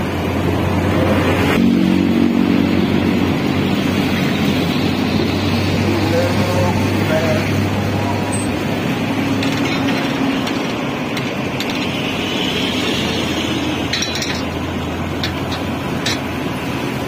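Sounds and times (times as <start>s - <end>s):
paver diesel engine drone: 0.0s - 17.0s.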